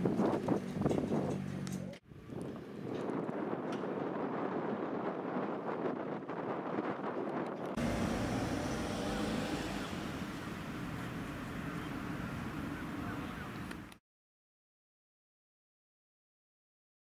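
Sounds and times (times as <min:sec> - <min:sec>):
traffic rumble: 0:00.0 - 0:05.4, 0:07.7 - 0:14.0
wind: 0:00.0 - 0:14.0.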